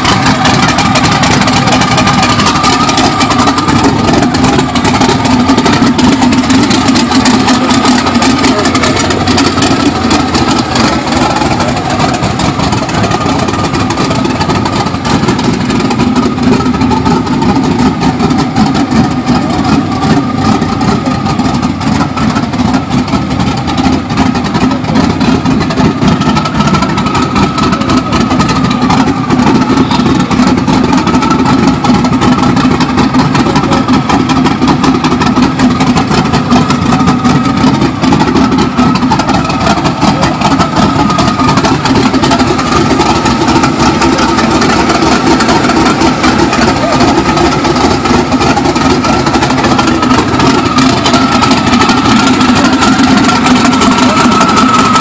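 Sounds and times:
truck engine idling: 0:00.0 - 0:55.0
faint high tone: 0:29.5 - 0:30.4.

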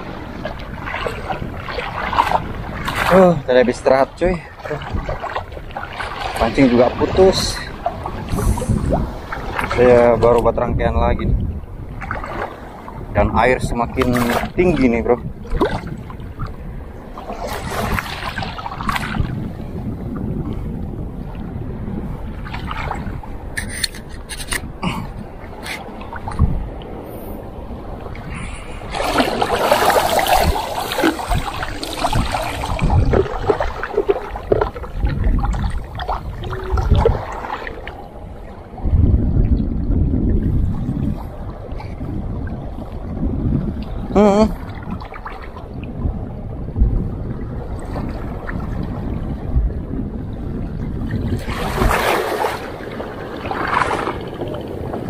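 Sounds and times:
seawater washing: 0:00.0 - 0:10.5, 0:12.0 - 0:19.6, 0:27.8 - 0:38.8, 0:51.3 - 0:55.0
sea water splashing and sloshing: 0:00.0 - 0:55.0
wind buffeting microphone: 0:00.0 - 0:55.0.

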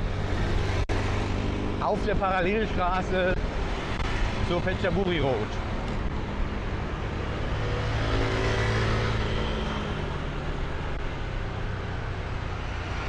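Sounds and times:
motorbike engine hum: 0:00.0 - 0:13.0
passing vehicle engine: 0:00.0 - 0:13.0
road and wind noise: 0:00.0 - 0:13.0.

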